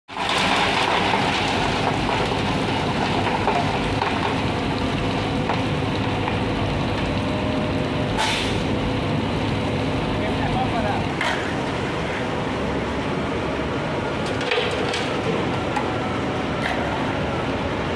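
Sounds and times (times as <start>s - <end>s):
wet concrete rushing down chute: 0.1s - 8.0s
concrete mixer truck hum: 0.1s - 17.9s
short hiss: 8.2s - 8.7s.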